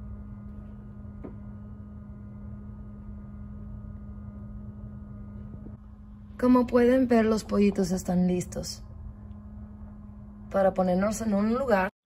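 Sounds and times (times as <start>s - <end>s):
low electrical hum: 0.0s - 12.0s.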